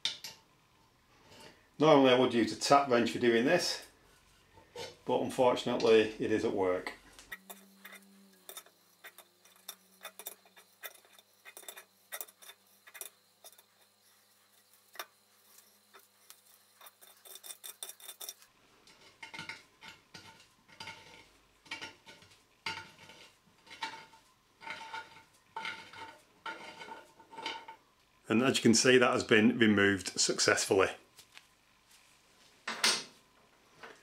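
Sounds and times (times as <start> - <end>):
spanner clinking and scraping on metal: 5.7 - 27.8.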